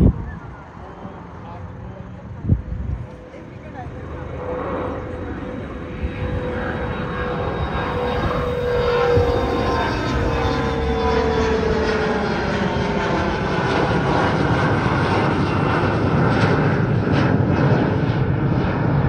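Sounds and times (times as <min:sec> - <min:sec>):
jet engine whine: 0:00.0 - 0:19.0
jet roar passing overhead: 0:00.0 - 0:19.0.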